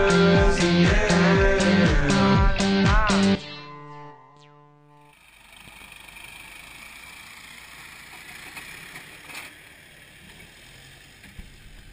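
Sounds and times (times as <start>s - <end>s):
background music: 0.0s - 5.0s
muffled diesel tractor running: 5.1s - 11.9s.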